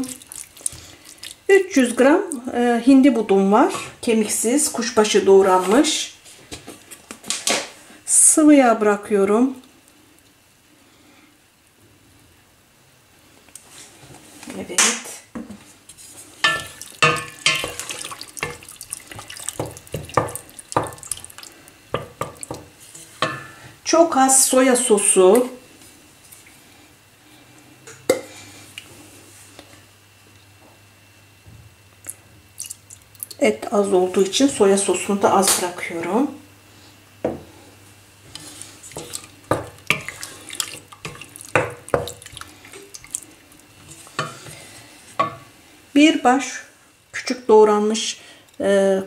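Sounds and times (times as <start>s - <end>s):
wet squelching of meat: 0.0s - 1.5s, 16.6s - 21.7s, 32.6s - 33.4s, 38.4s - 43.7s
spoon knocking against pot: 16.4s - 18.6s
wooden spoon scraping metal pot: 38.3s - 43.1s, 43.8s - 45.4s.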